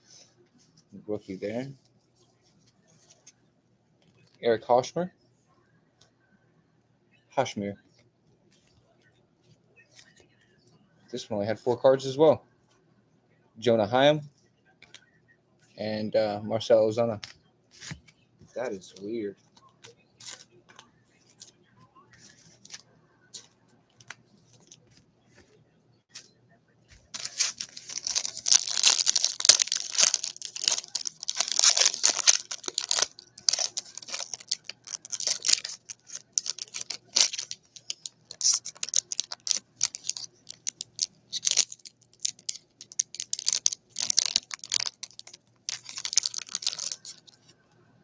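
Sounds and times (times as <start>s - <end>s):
foil wrapper crinkling and tearing: 27.1s - 47.4s.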